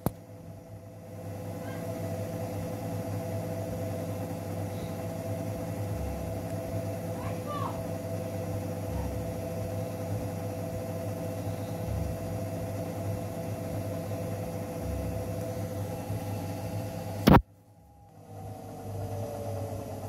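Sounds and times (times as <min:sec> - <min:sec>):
machine hum with low rumble: 0:00.0 - 0:20.0.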